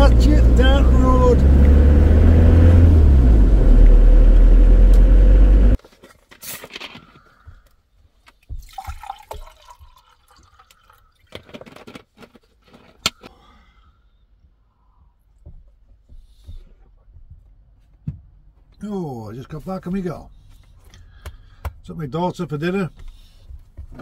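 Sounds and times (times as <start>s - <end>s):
van engine and tyre rumble: 0.0s - 5.8s
drink pouring into glass: 8.6s - 11.3s.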